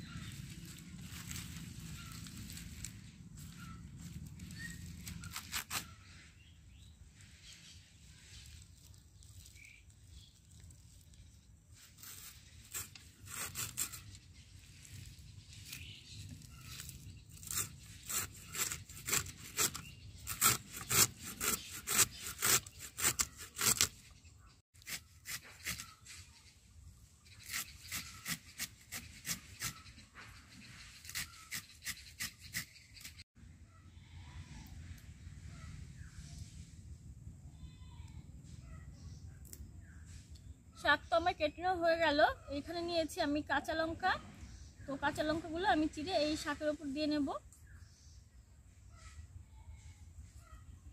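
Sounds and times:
blade slicing crisp stems: 0.2 - 6.0, 11.8 - 24.0.

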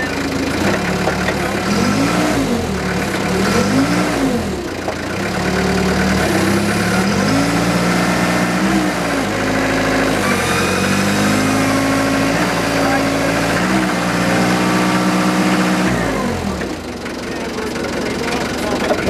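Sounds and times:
forklift engine revving: 0.0 - 19.0.

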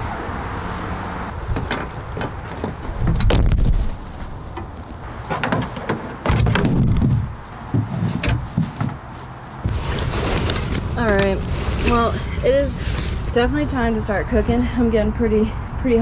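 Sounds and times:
wind buffeting microphone: 1.3 - 5.3, 6.3 - 16.0
tent fabric and gear rustling: 7.0 - 13.4.

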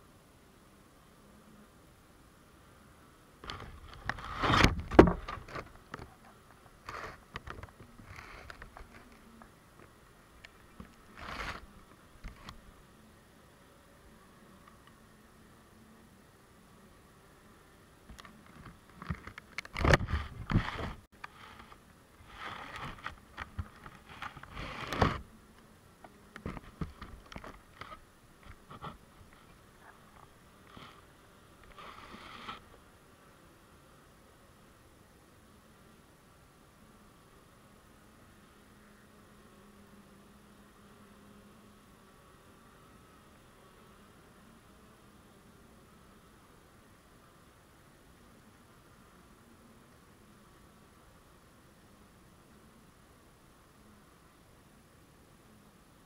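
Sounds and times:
rustling and scratching on microphone: 3.4 - 12.7, 18.1 - 25.3, 26.0 - 32.9
bees crawling clicks: 3.4 - 12.8, 14.0 - 16.0, 17.0 - 34.8, 35.6 - 56.0.

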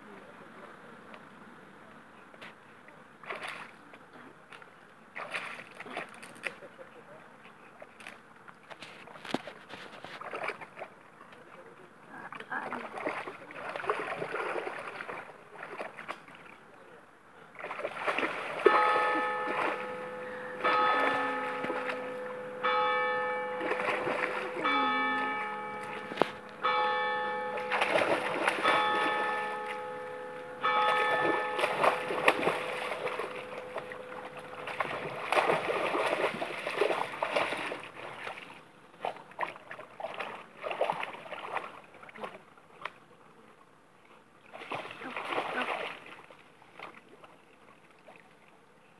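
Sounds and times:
dog splashing through water: 3.2 - 3.8, 5.1 - 6.7, 7.8 - 11.0, 12.3 - 16.6, 17.5 - 30.0, 30.6 - 43.0, 44.5 - 48.3
bell tolling: 18.7 - 36.2.

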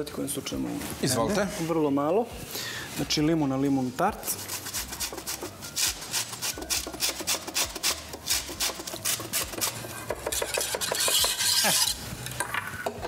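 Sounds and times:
zest grating on metal grater: 4.2 - 12.0.

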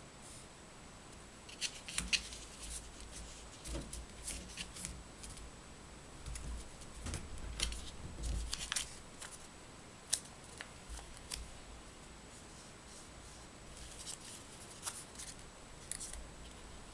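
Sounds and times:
paper rustling and crinkling: 1.5 - 5.4, 6.3 - 9.5, 10.1 - 11.5, 13.7 - 16.6
sharp paper crackle: 1.5 - 5.4, 6.3 - 9.5, 10.1 - 11.5, 13.7 - 16.2.

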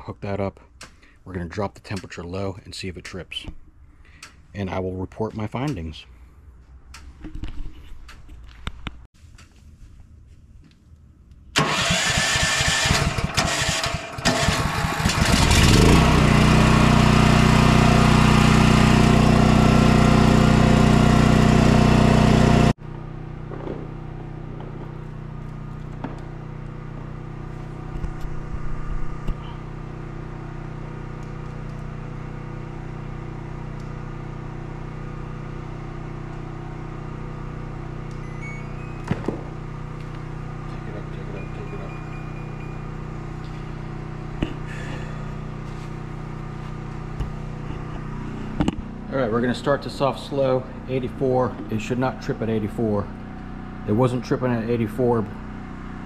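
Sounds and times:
generator engine cranking and running: 11.5 - 56.0.

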